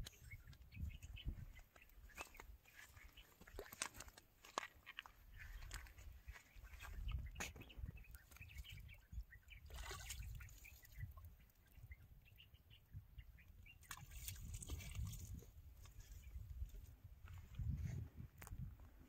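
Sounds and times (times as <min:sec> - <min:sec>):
faint water sounds: 0:00.0 - 0:17.7
faint bird chirps: 0:05.3 - 0:14.8
water splashing: 0:09.6 - 0:11.2, 0:13.8 - 0:15.5.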